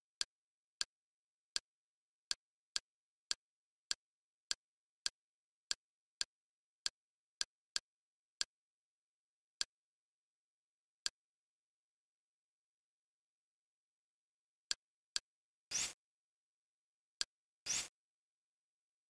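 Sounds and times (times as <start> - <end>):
user interface clicks: 17.7 - 17.9.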